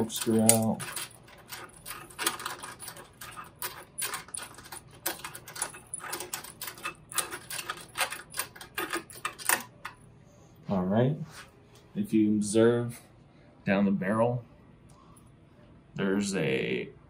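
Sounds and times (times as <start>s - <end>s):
keys jangling on ring: 0.0s - 9.6s
key turning in lock clicking: 0.0s - 9.9s.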